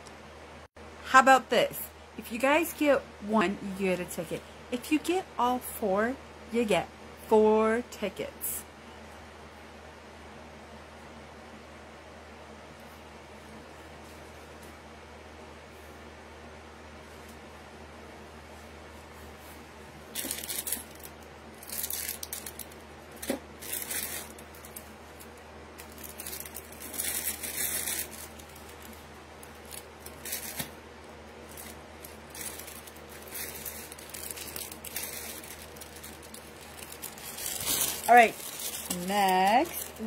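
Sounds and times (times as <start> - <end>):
packaging rustling and crinkling: 20.1 - 40.0.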